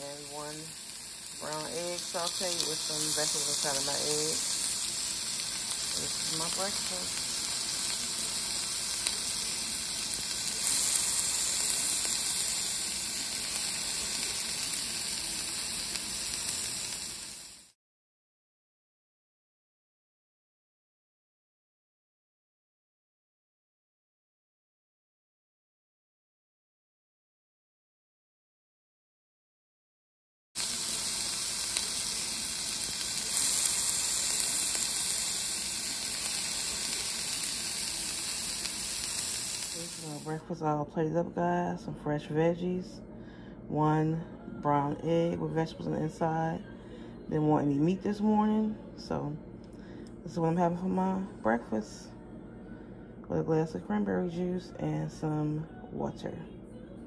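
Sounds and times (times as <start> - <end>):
food sizzling in a frying pan: 0.0 - 17.8, 30.6 - 40.4.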